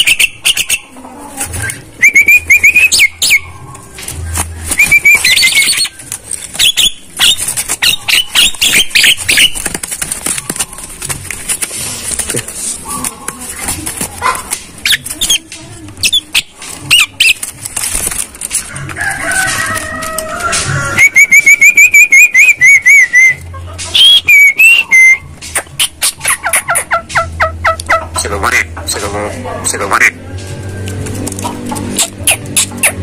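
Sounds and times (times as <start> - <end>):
bird whistles: 1.6 - 3.5, 4.7 - 6.0, 6.6 - 9.6, 20.9 - 26.7
myna calling: 4.7 - 11.1, 19.3 - 30.2.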